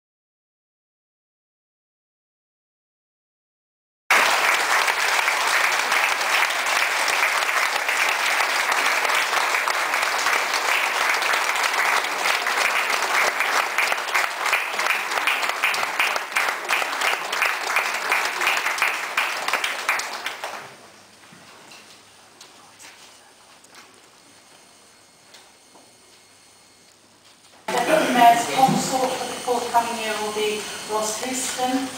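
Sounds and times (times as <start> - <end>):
audience applauding: 4.1 - 21.0, 27.7 - 29.8
quiet room murmur: 4.2 - 29.3.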